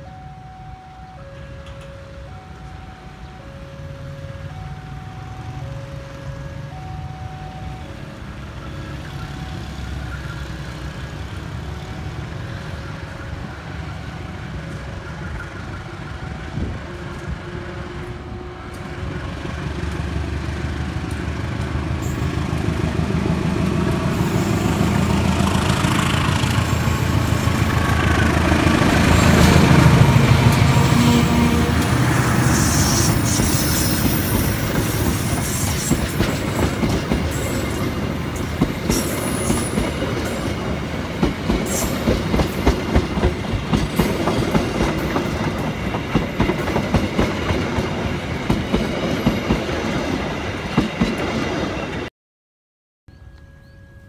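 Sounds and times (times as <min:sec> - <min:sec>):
level crossing alarm chiming: 0:00.0 - 0:10.4
train wheels on rails: 0:01.2 - 0:52.1.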